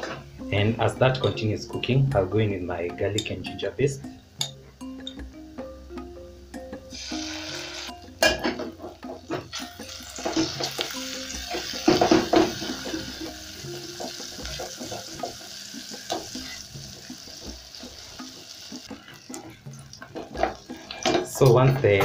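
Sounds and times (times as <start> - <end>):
onions sizzling in hot oil: 6.9 - 21.1.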